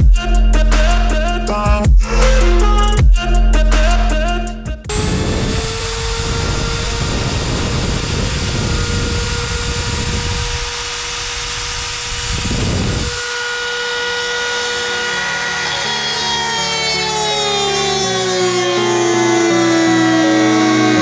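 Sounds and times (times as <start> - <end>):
rotary tool whining: 4.9 - 21.0.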